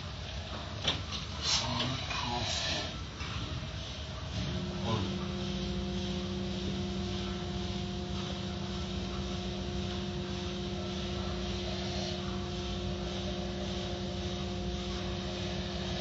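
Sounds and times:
car wash machinery running: 0.0 - 16.0.

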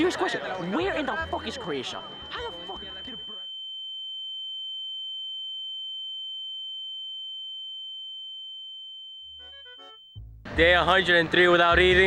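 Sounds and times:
high-pitched electronic tone: 0.0 - 3.6.

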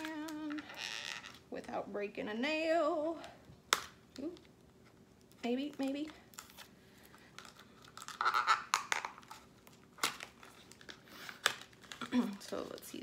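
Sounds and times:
sharp packaging snap: 3.7 - 4.3, 8.0 - 12.0
packaging tearing and crinkling: 5.8 - 13.0.

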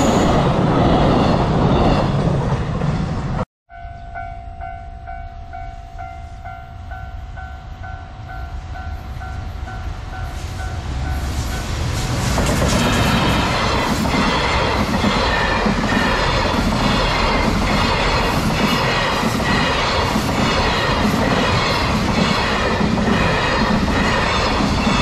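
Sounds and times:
train rumbling: 0.0 - 25.0.

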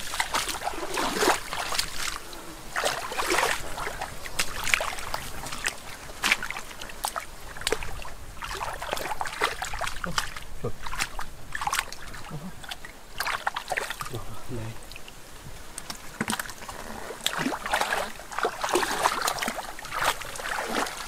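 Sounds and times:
hands splashing in muddy water: 0.0 - 14.2, 17.2 - 21.0.

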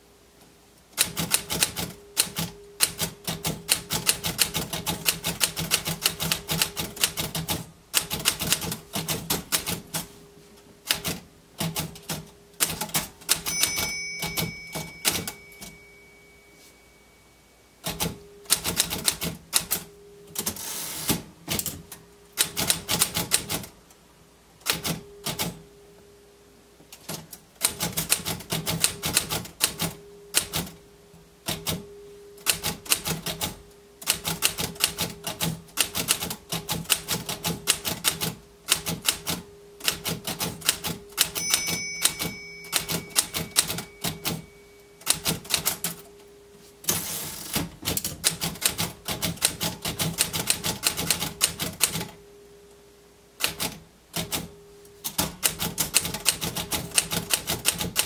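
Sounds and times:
manual typewriter key strikes: 1.0 - 10.1, 10.9 - 15.8, 22.4 - 23.7, 27.0 - 30.8, 32.4 - 44.4, 45.0 - 46.0, 46.9 - 52.1, 53.4 - 58.0.

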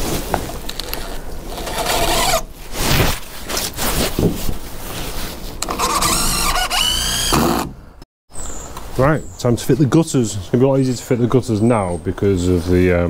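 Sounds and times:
cordless drill whirring: 1.6 - 2.4, 5.6 - 7.8.

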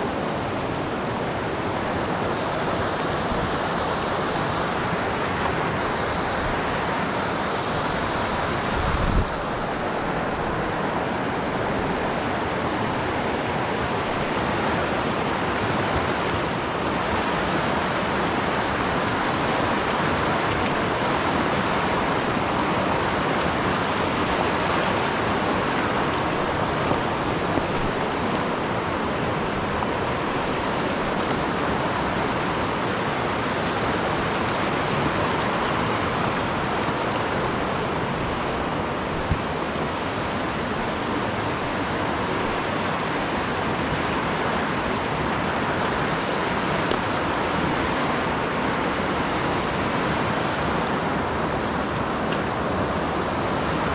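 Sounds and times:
stream rushing over rocks: 0.0 - 53.9.

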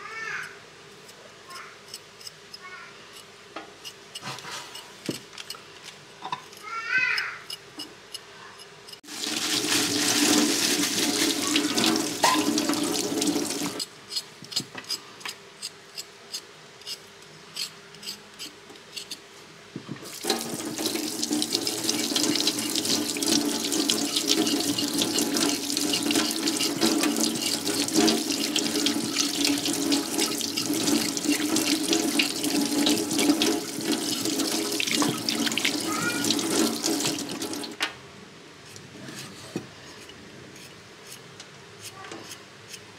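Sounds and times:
tap water splashing into sink: 9.2 - 13.8, 20.0 - 37.8
knife scraping root: 13.8 - 19.2.

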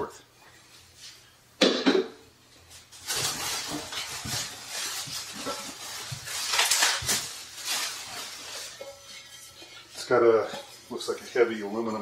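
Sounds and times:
packaging rustling: 2.8 - 9.3.

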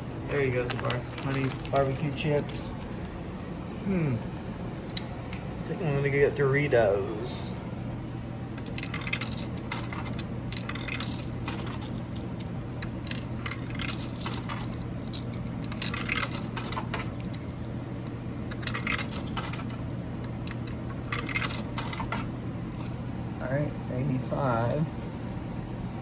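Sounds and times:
low hum: 0.0 - 26.0
coins rattling through vending machine: 0.3 - 2.7, 8.6 - 17.3, 18.5 - 19.8, 20.6 - 23.0, 24.4 - 25.5.

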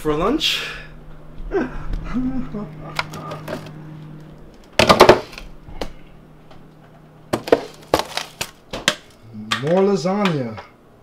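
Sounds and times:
steady low hum: 0.0 - 11.0
plastic container clattering: 7.3 - 8.6.

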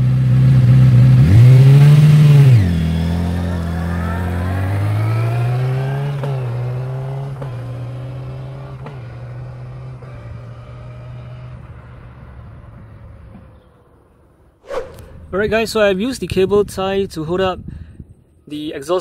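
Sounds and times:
motorcycle engine revving and pulling away: 0.0 - 14.5.

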